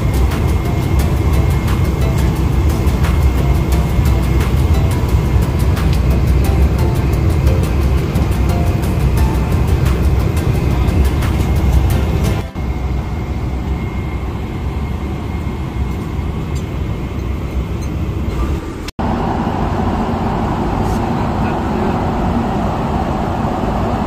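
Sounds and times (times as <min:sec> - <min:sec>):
airliner cabin engine noise: 0:00.0 - 0:24.0.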